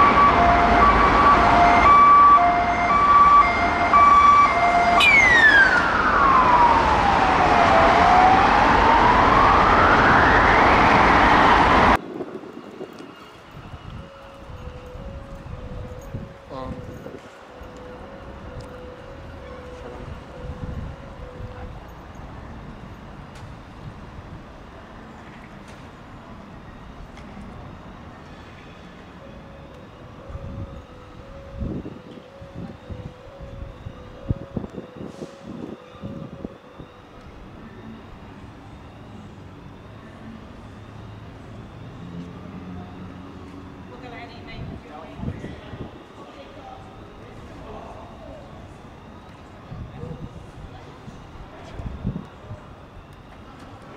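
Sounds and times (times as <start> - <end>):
siren wailing: 0.0 - 23.0, 26.3 - 53.9
traffic noise: 0.0 - 53.9
wind buffeting microphone: 2.9 - 17.4, 18.2 - 22.6, 30.1 - 37.6, 44.2 - 46.1, 49.0 - 53.3.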